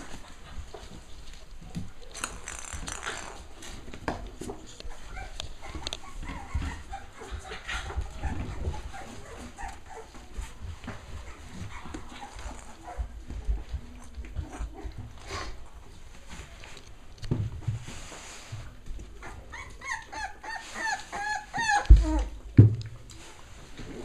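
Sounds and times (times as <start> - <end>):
puppies scuffling on hard floor: 0.0 - 24.0
puppy vocalisations: 4.7 - 10.3, 19.1 - 22.4.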